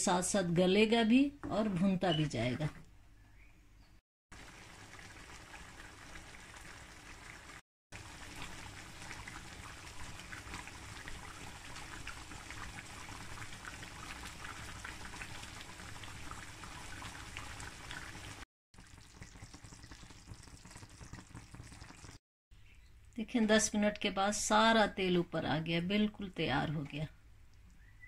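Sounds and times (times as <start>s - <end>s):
curry bubbling in a frying pan: 4.3s - 22.2s.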